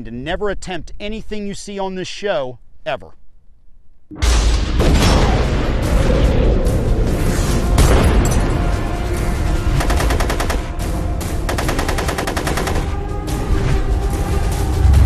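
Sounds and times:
theme music: 4.1s - 15.0s
automatic rifle fire: 11.5s - 12.9s.

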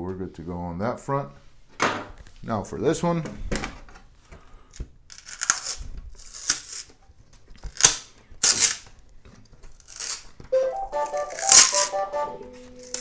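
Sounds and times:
printer electronic jingle: 10.5s - 13.0s.

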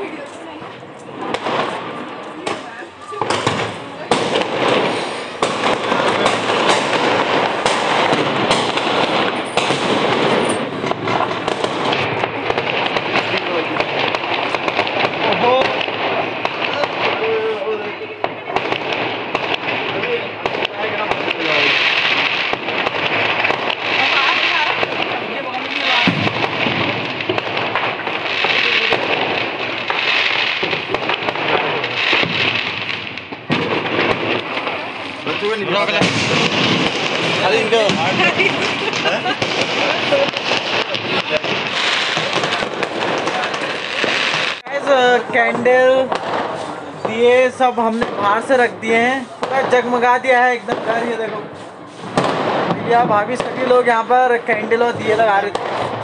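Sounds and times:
firecrackers crackling: 0.0s - 56.0s
firework bangs: 0.0s - 56.0s
rocket bursting overhead: 0.0s - 56.0s.

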